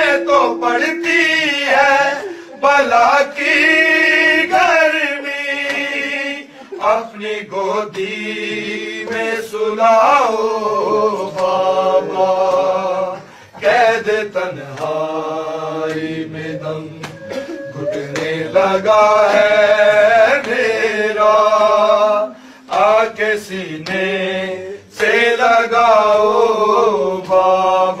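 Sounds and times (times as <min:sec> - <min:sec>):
solo voice chanting: 0:00.0 - 0:04.6, 0:14.6 - 0:20.9.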